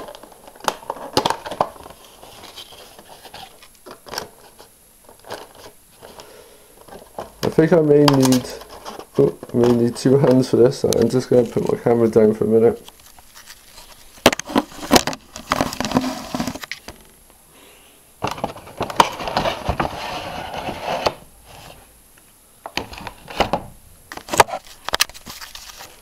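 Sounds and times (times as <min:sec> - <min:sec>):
cardboard box rustling: 0:00.0 - 0:04.6.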